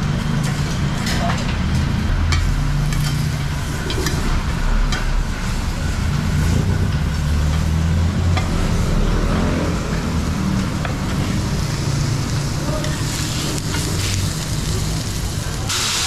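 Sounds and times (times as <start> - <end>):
steak sizzling on a hot plate: 10.5 - 16.0.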